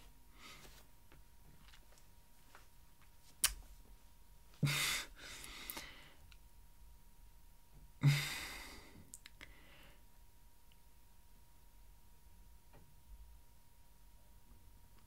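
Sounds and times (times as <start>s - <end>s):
man sighing heavily: 4.6s - 6.1s, 8.0s - 9.0s.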